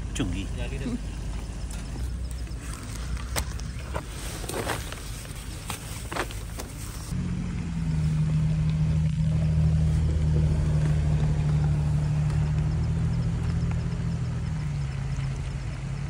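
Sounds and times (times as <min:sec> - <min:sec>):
low engine hum: 0:00.0 - 0:16.0
plastic bag rustling: 0:03.7 - 0:07.1.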